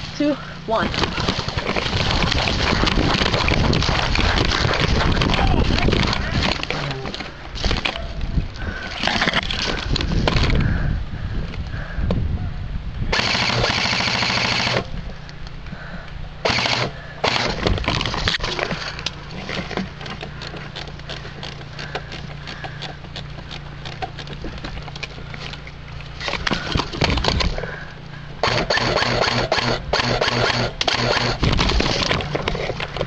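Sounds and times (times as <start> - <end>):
dry brush crackling: 0.0 - 10.3
airsoft rifle full-auto bursts: 13.1 - 14.9, 16.4 - 17.6, 28.4 - 32.0.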